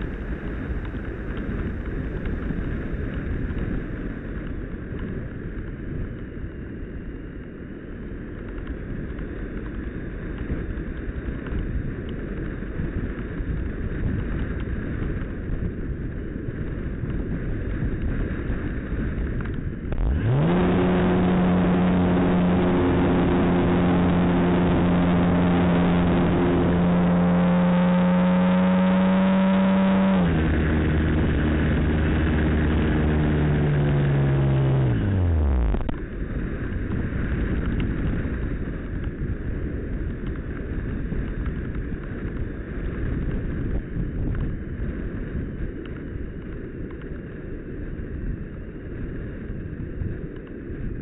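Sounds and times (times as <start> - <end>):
rushing airflow: 0.0 - 4.6
electric motor and propeller whine: 0.0 - 51.0.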